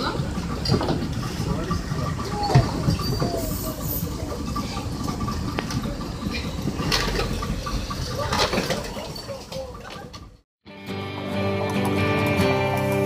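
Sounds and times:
boat engine idling: 0.0 - 10.4.

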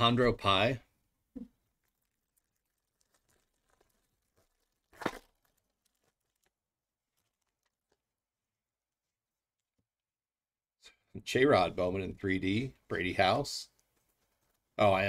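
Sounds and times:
wrapper ripping open: 1.8 - 8.1.

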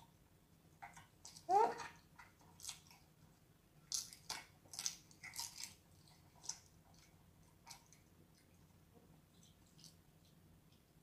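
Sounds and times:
wet chewing: 3.8 - 10.9.

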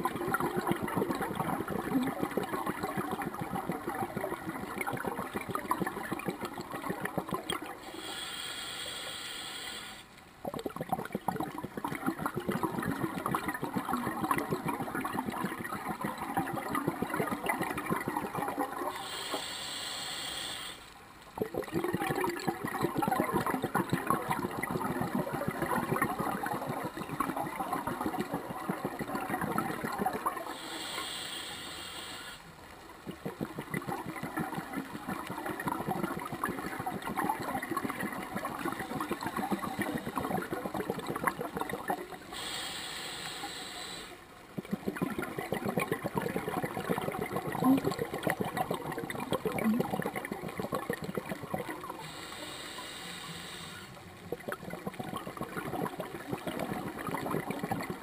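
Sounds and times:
crackling exhaled bubbles: 0.0 - 58.0
regulator inhale hiss: 7.8 - 10.1, 18.9 - 20.9, 30.5 - 32.5, 42.3 - 44.2, 51.9 - 54.0.

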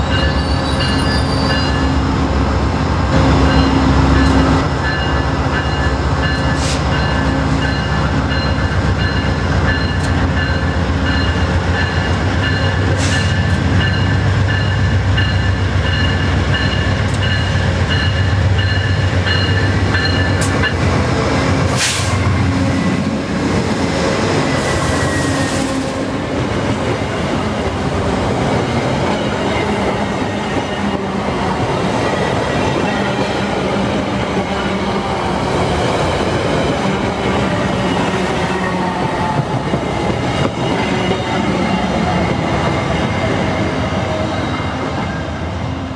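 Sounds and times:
locomotive bell ringing: 0.0 - 2.0, 3.2 - 20.9
diesel locomotive engine rumbling: 0.0 - 45.9
train coaches rolling on rails: 0.0 - 45.9
short air hiss: 21.8 - 22.2.

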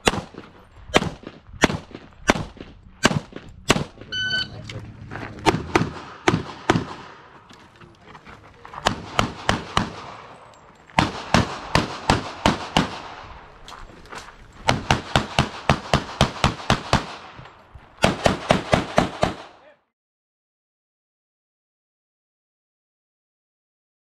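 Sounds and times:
rapid pistol shots: 0.0 - 4.1, 5.4 - 7.3, 8.8 - 10.4, 11.0 - 13.3, 14.7 - 17.4, 18.0 - 19.6.

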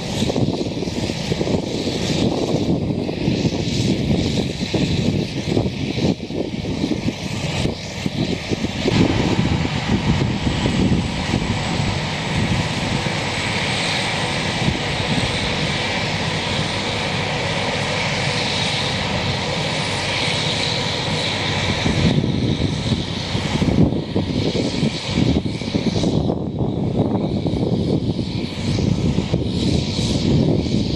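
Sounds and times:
forage harvester engine drone: 0.0 - 30.9.

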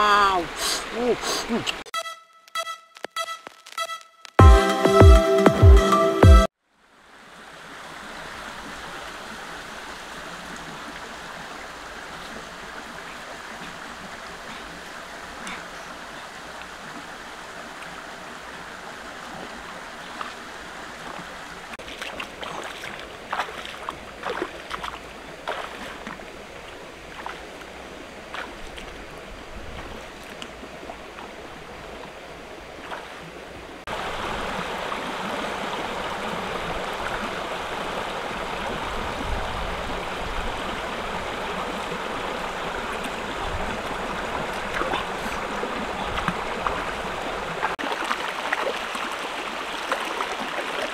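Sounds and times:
stream flowing over rocks: 0.0 - 1.8, 6.7 - 50.9
feet wading through water: 19.1 - 50.9.

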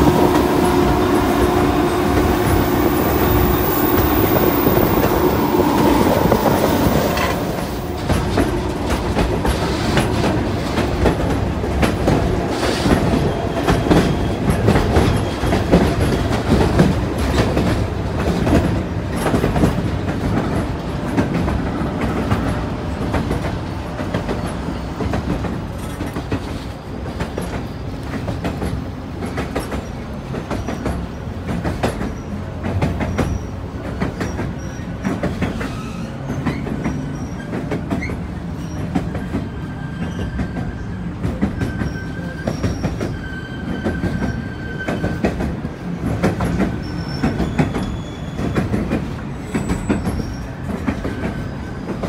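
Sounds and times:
train rumbling on rails: 0.0 - 52.0
high-pitched wheel squeals: 35.6 - 45.3, 46.8 - 48.8.

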